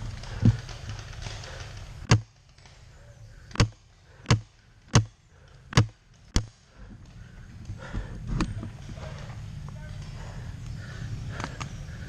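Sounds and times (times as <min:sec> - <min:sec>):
paintball marker firing: 0:02.0 - 0:02.7, 0:03.5 - 0:06.6.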